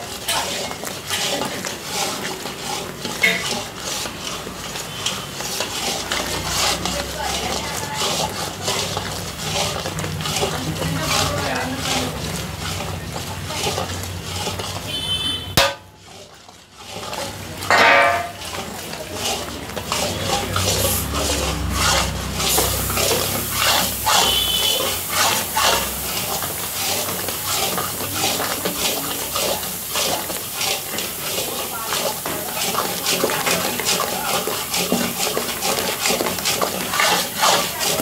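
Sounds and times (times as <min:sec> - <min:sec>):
metal spatula scraping a pan: 0:00.0 - 0:38.0
thick mixture bubbling: 0:00.0 - 0:38.0.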